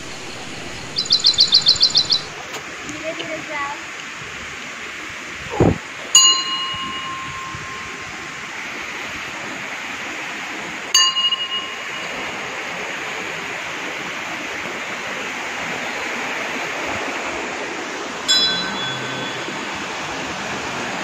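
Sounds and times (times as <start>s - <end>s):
running water: 0.0s - 21.0s
temple bells ringing: 6.2s - 8.5s, 11.0s - 12.8s, 18.3s - 20.5s.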